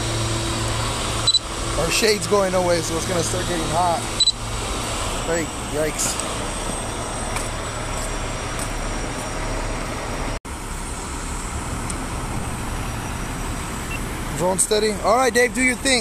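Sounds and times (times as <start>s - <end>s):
diesel trucks idling: 0.0s - 16.0s.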